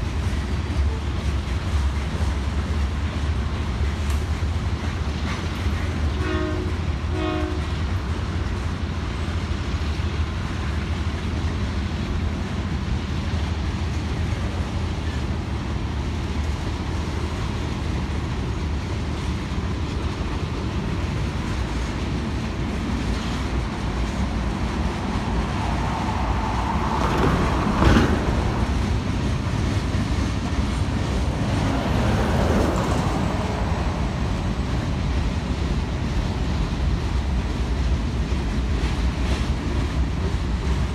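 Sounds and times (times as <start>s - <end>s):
freight train wheels rumbling: 0.0s - 40.9s
train horn notes: 5.8s - 8.0s.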